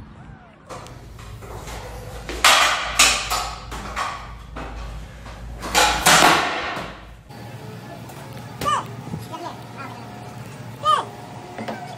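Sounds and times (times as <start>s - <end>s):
scooter clattering on tiled floor: 0.8s - 7.2s.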